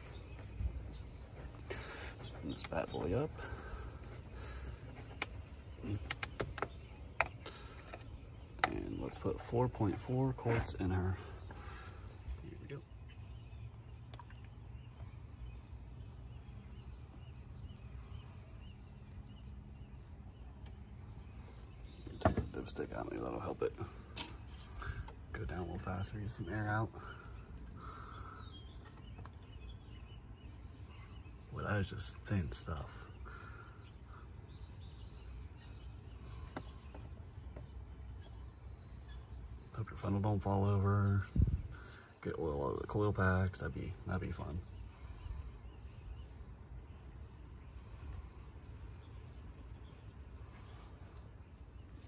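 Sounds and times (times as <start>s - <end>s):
small birds chirping: 0.0s - 52.0s.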